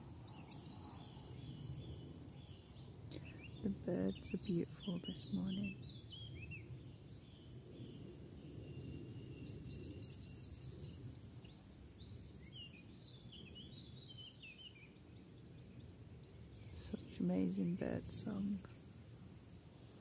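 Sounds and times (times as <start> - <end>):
birds chirping: 0.0 - 20.0
road traffic rumble: 16.7 - 18.7.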